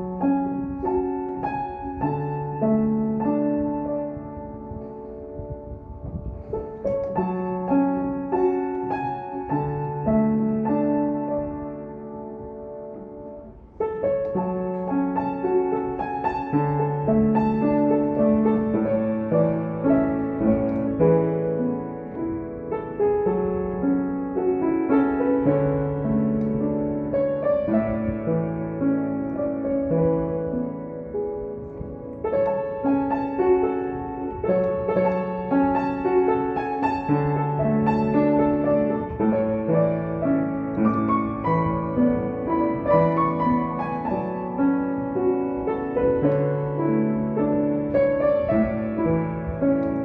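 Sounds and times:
slow soft piano: 0.0 - 50.0.

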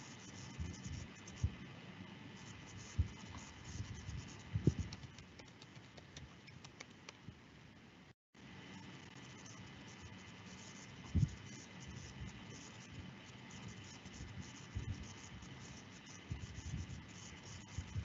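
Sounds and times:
faint background hum: 0.0 - 18.0
keyboard typing: 4.7 - 7.2.

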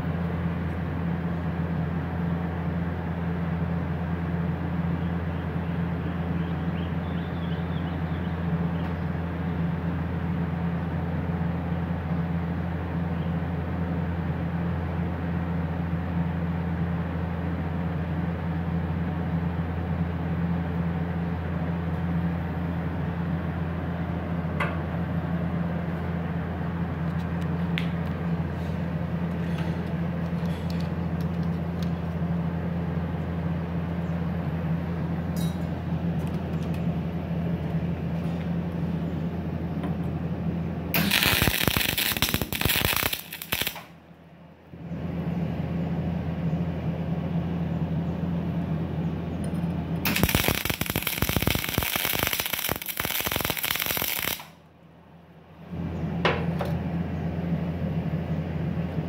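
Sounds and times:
welding machine humming: 40.9 - 44.0, 50.0 - 54.6
welding arc crackling: 41.0 - 44.0, 50.0 - 54.6.

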